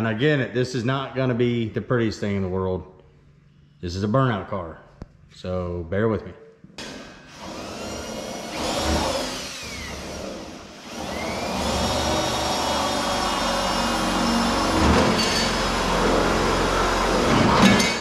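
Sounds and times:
electric drill whining: 6.9 - 17.6.

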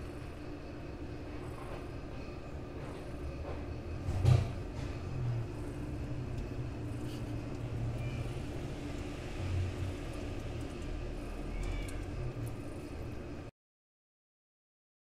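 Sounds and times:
cat purring: 4.2 - 12.8.

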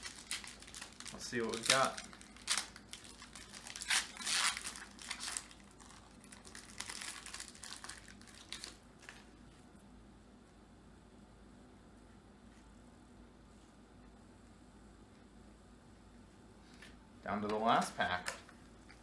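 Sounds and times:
wrapper tearing and crinkling: 0.0 - 9.3.

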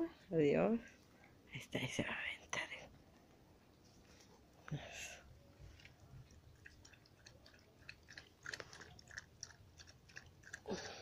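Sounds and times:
dog chewing from a bowl: 5.8 - 11.0.

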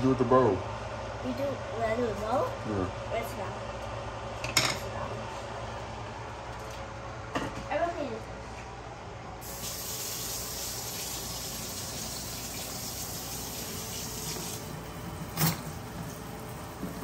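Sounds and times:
water running from tap: 9.4 - 17.0.

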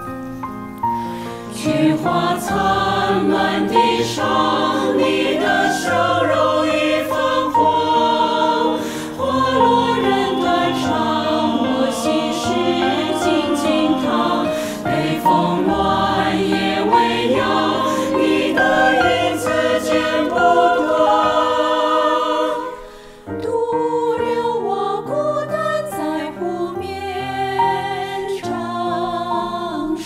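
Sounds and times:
mixed choir singing: 1.5 - 30.0.

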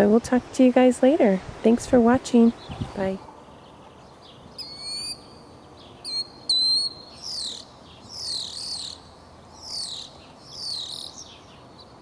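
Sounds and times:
starling whistles: 4.5 - 5.3, 6.0 - 11.3.

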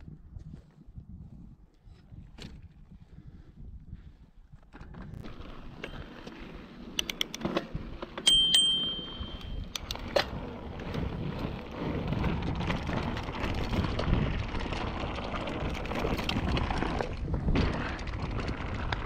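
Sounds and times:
wind on microphone: 0.0 - 5.8, 7.7 - 19.0
bike rattling over bumps: 4.5 - 19.0
sharp metallic dings: 8.3 - 9.7
bike tyres crunching on gravel: 10.3 - 19.0.

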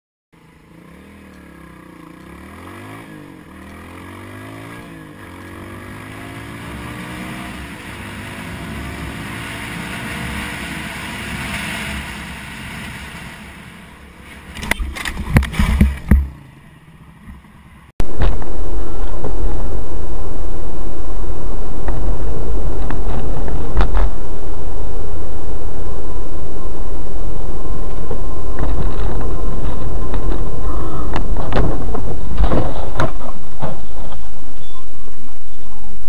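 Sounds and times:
motorcycle engine accelerating: 0.4 - 36.0
loud knocks and thumps: 14.7 - 16.4
wind rush: 18.0 - 36.0.

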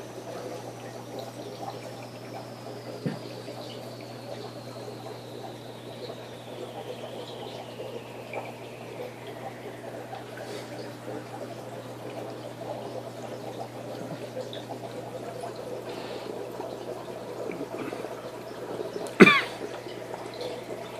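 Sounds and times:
steady low hum: 0.0 - 20.9
water trickling and bubbling: 0.0 - 20.9.

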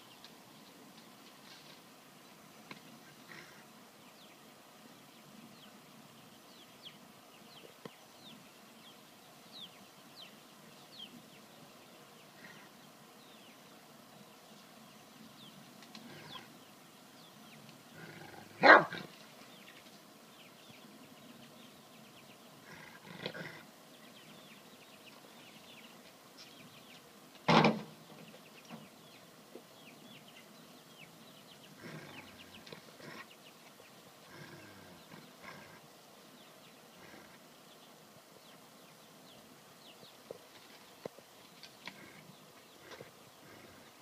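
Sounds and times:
dog barking: 18.6 - 19.1.

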